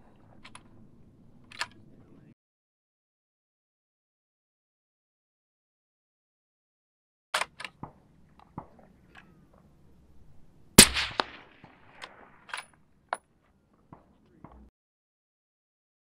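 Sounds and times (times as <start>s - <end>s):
rifle shot: 10.8s - 12.6s.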